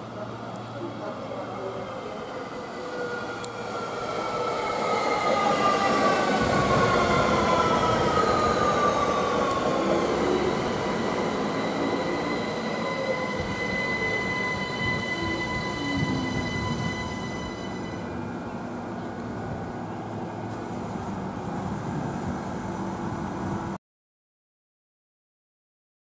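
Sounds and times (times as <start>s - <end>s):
train passing: 0.0s - 23.8s
steady high tone: 0.9s - 18.7s.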